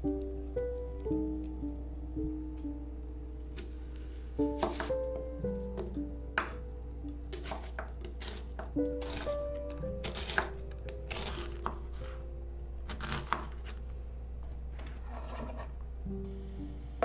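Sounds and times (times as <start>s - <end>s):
knife chopping on wooden board: 4.6s - 5.0s, 7.3s - 9.3s.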